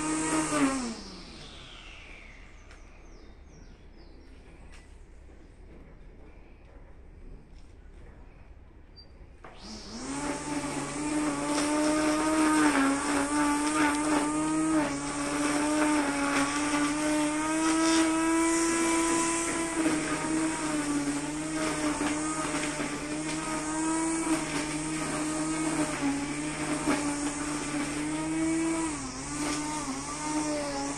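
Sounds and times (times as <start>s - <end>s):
brush cutter motor running: 0.0s - 3.2s, 9.4s - 30.9s.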